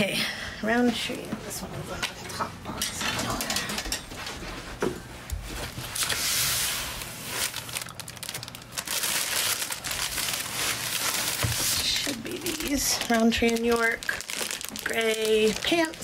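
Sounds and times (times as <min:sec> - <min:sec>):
plastic bags crinkling: 0:05.6 - 0:16.0.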